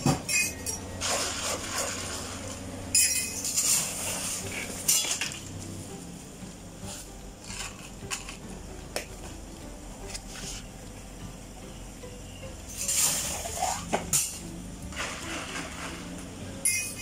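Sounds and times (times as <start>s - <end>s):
utensils and cups clinking: 0.0s - 5.6s, 6.8s - 9.4s, 12.6s - 17.0s.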